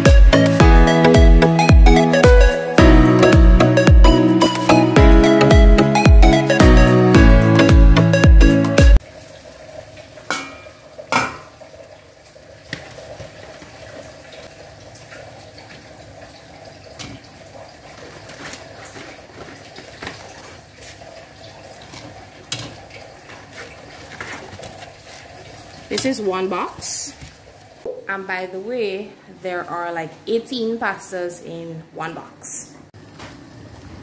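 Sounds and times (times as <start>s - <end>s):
water bubbling in a pot: 9.0s - 27.9s
metal pot lid clanking: 10.3s - 11.6s.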